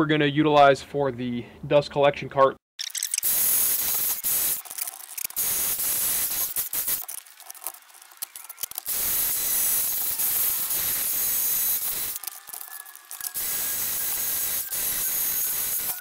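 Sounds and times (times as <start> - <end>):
angle grinder grinding steel: 3.2 - 16.0.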